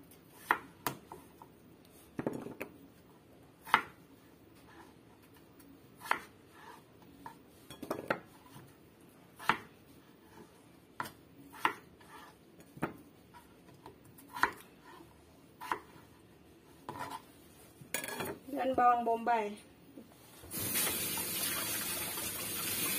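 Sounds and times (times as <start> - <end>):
knife chopping on cutting board: 3.6 - 4.0, 6.0 - 6.3, 9.4 - 9.7, 11.0 - 13.0, 14.2 - 15.0, 15.6 - 16.0.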